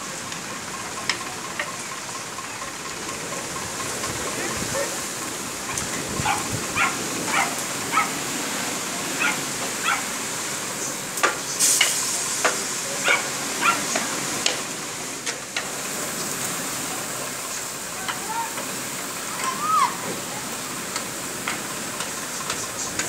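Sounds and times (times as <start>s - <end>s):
heavy wind-driven rain: 0.0s - 23.0s
dog barking: 5.7s - 8.2s, 9.2s - 10.1s, 13.0s - 14.0s.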